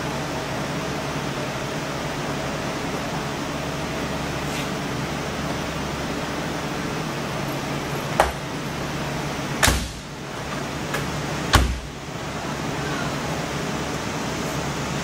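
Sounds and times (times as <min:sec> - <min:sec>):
background hum: 0:00.0 - 0:15.0
steel car door shutting: 0:08.0 - 0:08.6, 0:09.6 - 0:12.0.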